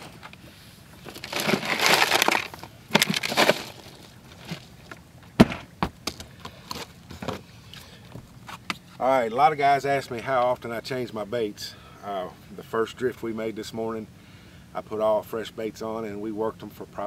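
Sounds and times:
hands crunching through ice: 1.1s - 4.1s.

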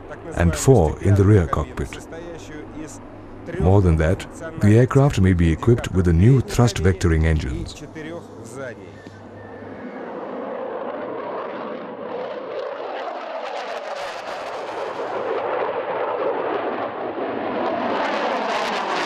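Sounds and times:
fighter jet engines roaring: 0.0s - 19.0s.

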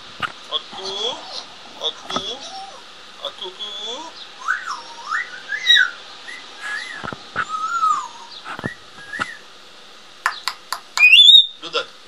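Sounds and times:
parrot whistling: 4.4s - 9.4s, 10.3s - 11.6s
parrot clicks: 10.3s - 11.3s.

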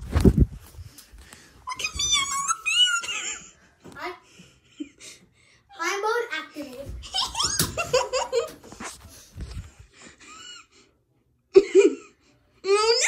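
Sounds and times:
child squealing and laughing: 1.7s - 3.5s, 7.0s - 8.4s.

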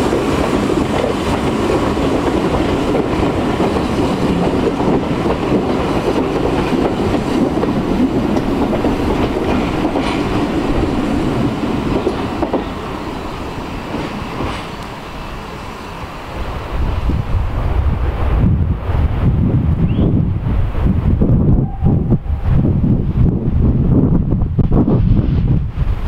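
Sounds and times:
train wheels clattering on rails: 0.0s - 15.6s.

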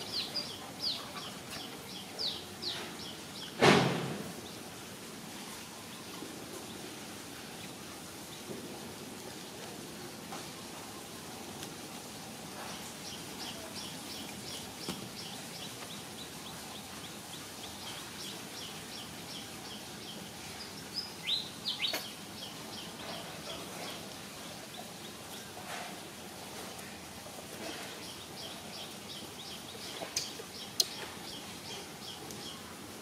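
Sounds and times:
bird chirping: 0.0s - 3.6s, 12.8s - 24.0s, 28.0s - 32.6s
outdoor background noise: 0.0s - 33.0s.

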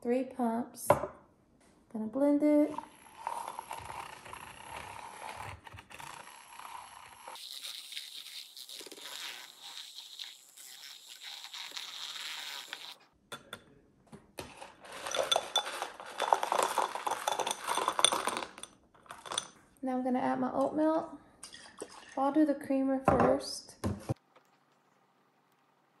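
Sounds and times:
whisk swishing in a cup: 2.7s - 13.0s
utensil clinking against cup: 14.9s - 19.6s.

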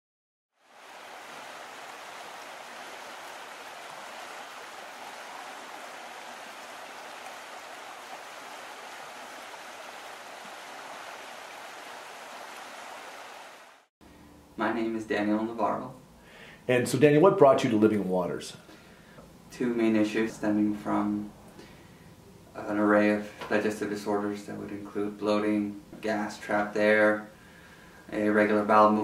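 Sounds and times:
rushing water: 0.6s - 13.9s.

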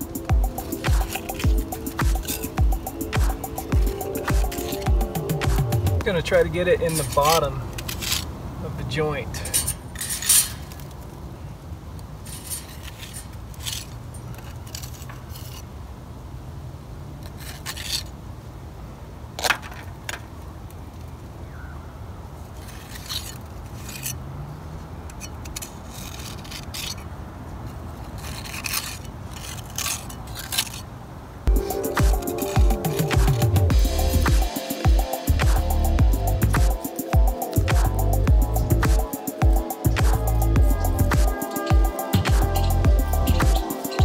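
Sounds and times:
metal tool scraping mortar: 0.0s - 8.3s, 9.4s - 11.0s, 12.2s - 15.7s, 17.2s - 18.1s, 22.6s - 24.2s, 25.1s - 27.1s, 27.9s - 30.9s, 31.5s - 44.0s.

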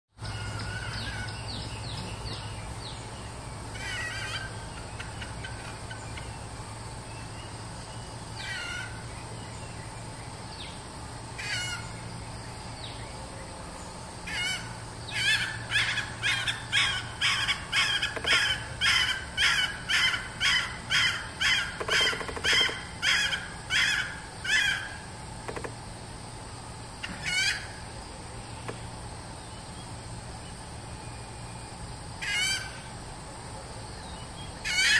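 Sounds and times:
junglefowl hen calling: 0.2s - 1.6s, 3.7s - 6.4s, 8.4s - 9.1s, 11.4s - 12.0s, 14.3s - 25.1s, 27.0s - 27.8s, 32.2s - 32.8s, 34.6s - 34.9s.

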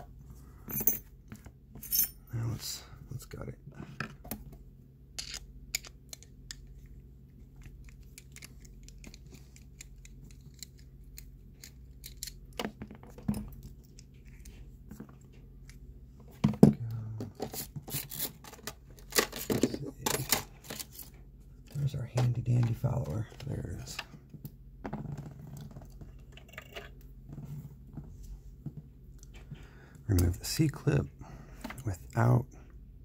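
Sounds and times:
metal clicks and scrapes of padlock: 7.8s - 12.4s.

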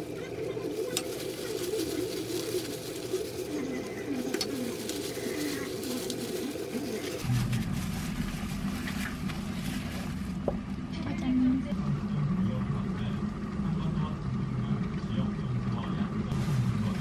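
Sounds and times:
lettuce leaves rustling: 0.0s - 10.5s
plastic gloves crinkling: 0.0s - 11.0s
low wavering background sound: 0.0s - 17.0s.

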